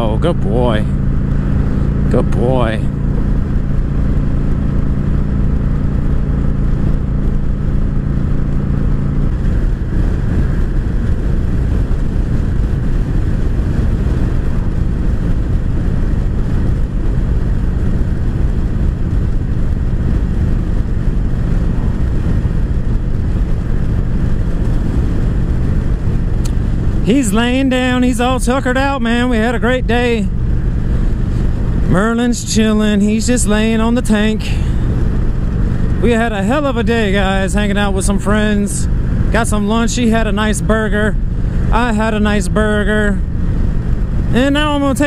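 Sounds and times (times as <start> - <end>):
motorcycle engine running: 0.0 - 45.0
wind rumble on microphone: 0.0 - 45.0.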